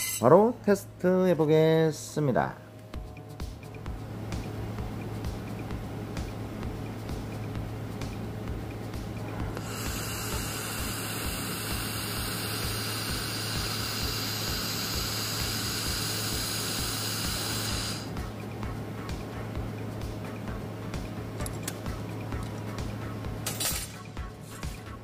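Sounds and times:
steady low hum: 0.0s - 25.0s
laser welder hissing: 9.6s - 18.1s.

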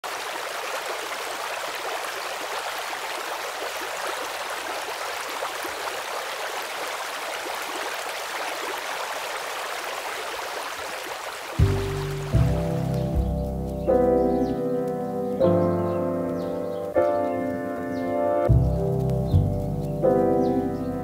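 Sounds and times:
steady hiss with fine crackle: 11.6s - 21.0s.

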